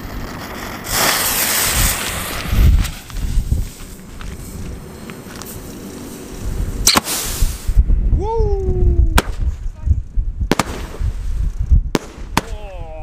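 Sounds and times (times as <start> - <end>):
firework crack and hiss: 0.0 - 7.8, 10.5 - 13.0
firework shells bursting: 0.0 - 7.8, 10.5 - 12.7
wind buffeting microphone: 0.0 - 13.0.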